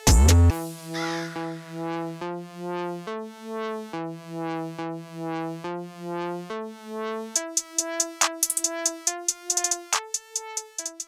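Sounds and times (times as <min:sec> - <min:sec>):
drum machine beat: 0:00.0 - 0:00.7, 0:07.4 - 0:11.0
synthesizer chords: 0:00.0 - 0:11.0.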